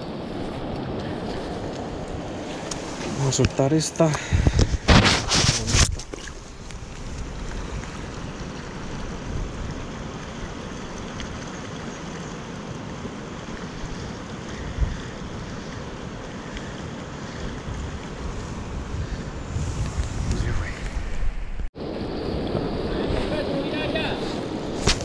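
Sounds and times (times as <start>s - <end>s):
wind on microphone: 4.2s - 11.5s, 13.5s - 25.0s.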